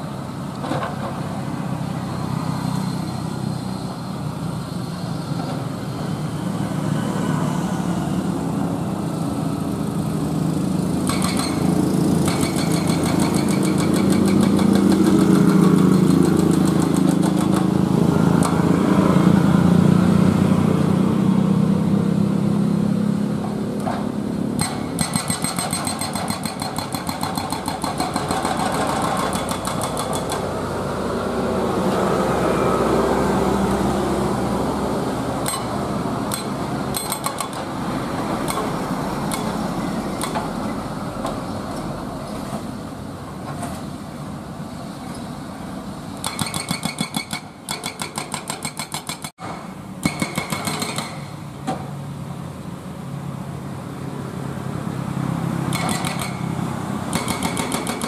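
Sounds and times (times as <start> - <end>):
excavator engine: 0.0 - 58.0
hydraulic breaker hammering road: 10.7 - 18.8, 23.4 - 30.7, 35.4 - 41.8, 46.1 - 52.0, 55.6 - 58.0.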